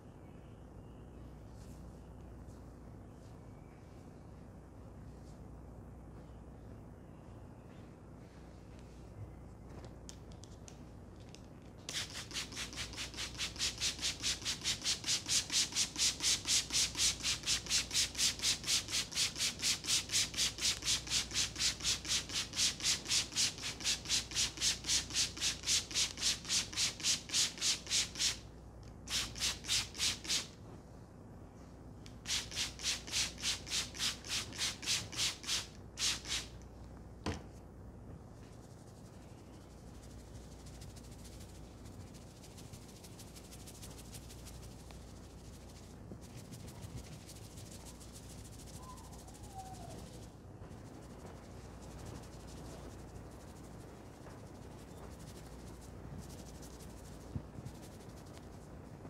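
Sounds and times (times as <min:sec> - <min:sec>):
spray bottle misting water: 0:11.9 - 0:28.4, 0:32.3 - 0:36.5.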